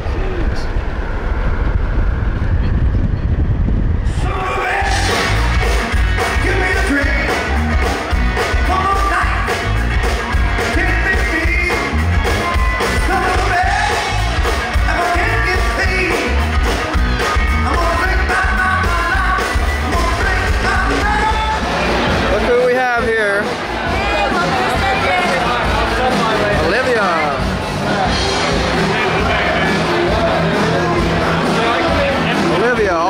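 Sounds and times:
heavy bass: 0.0s - 33.0s
man singing: 4.2s - 5.5s, 6.2s - 7.6s, 8.6s - 9.6s, 10.6s - 12.0s, 13.0s - 16.5s, 17.6s - 21.7s
drum beat: 4.7s - 33.0s.

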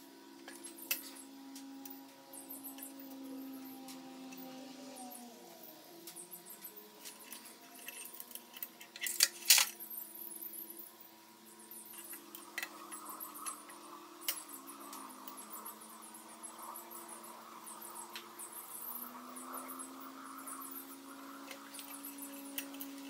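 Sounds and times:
faint steady hum: 0.0s - 23.0s
metal valve springs clinking: 6.6s - 10.4s.

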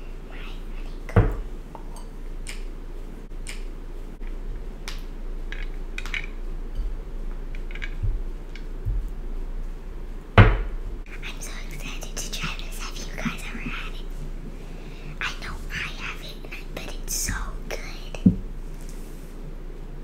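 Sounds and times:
steady low hum: 0.0s - 20.0s
loud low thump: 10.4s - 11.0s.

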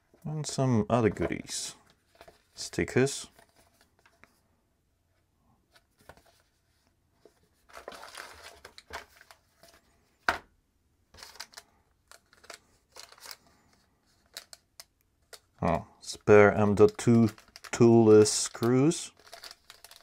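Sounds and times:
plastic bags crinkling: 17.0s - 20.0s.

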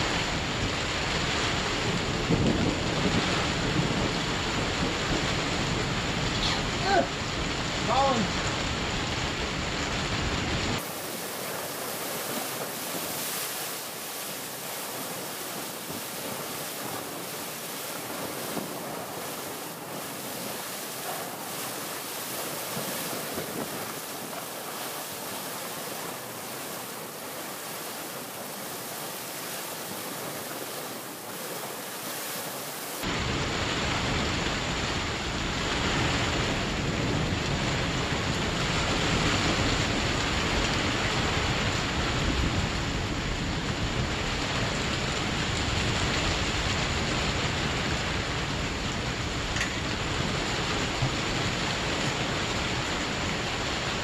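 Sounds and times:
heavy rain hissing: 0.0s - 42.0s.

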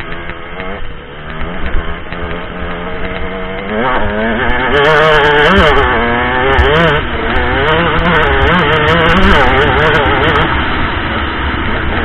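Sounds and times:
sharp clicks: 0.0s - 4.6s
dirt bike engine revving: 0.0s - 12.0s.

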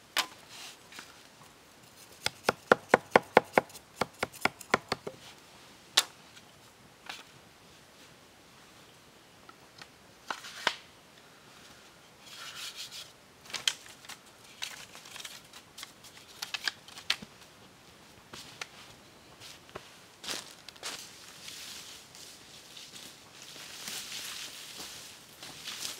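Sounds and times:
bamboo pieces knocking together: 2.2s - 5.2s
dry leaves rustling: 20.2s - 25.9s.

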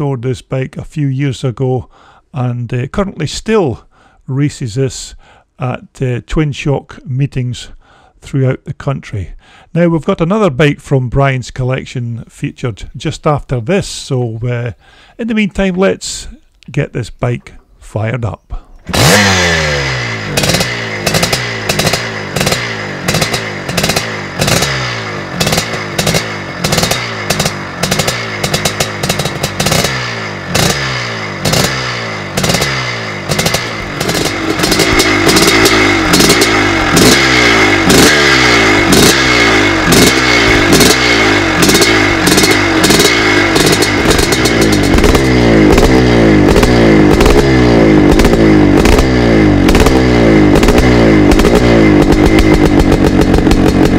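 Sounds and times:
two-stroke engine revving: 18.8s - 53.9s.

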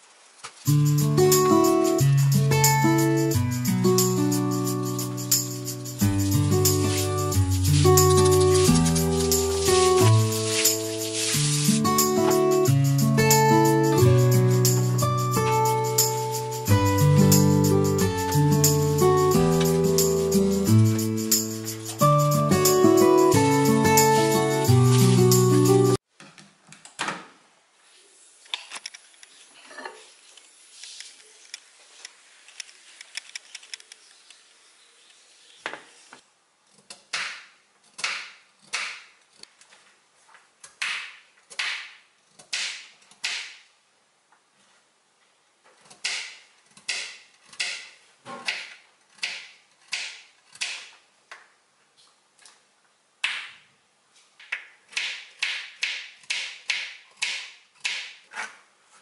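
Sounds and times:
knife slicing carrot on board: 45.9s - 50.9s.

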